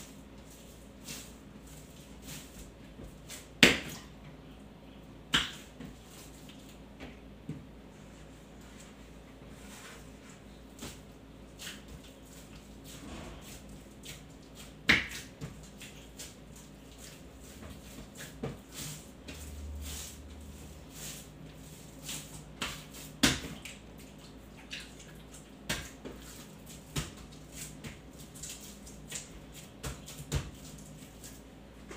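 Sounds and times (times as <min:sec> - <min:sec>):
hands kneading dough: 0:00.0 - 0:31.9
soft knocks and slaps of dough: 0:02.3 - 0:04.4, 0:05.3 - 0:07.8, 0:10.8 - 0:19.5, 0:22.1 - 0:24.9, 0:25.6 - 0:31.9.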